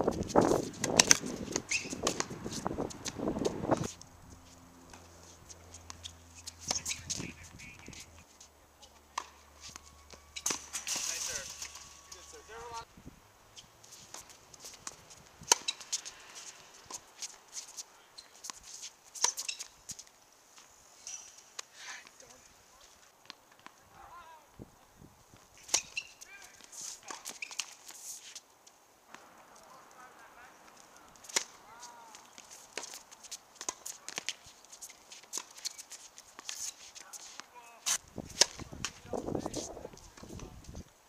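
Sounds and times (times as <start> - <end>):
tennis racket hitting ball: 0.7 - 3.9, 4.9 - 8.1, 8.9 - 12.7, 14.0 - 16.1, 31.1 - 34.4, 36.4 - 39.0
ball bouncing: 0.8 - 2.4, 8.9 - 12.2.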